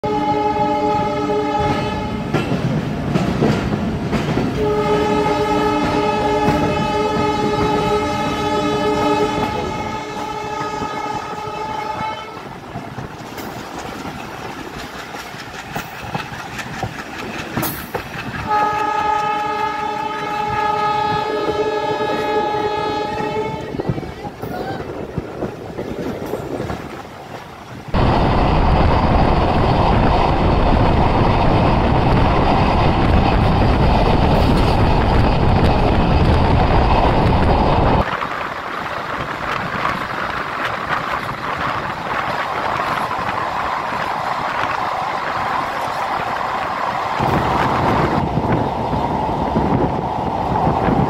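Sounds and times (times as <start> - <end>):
train horn blasts: 0.0 - 2.3, 4.6 - 12.5, 18.4 - 23.8
moving train rumbling: 0.0 - 51.0.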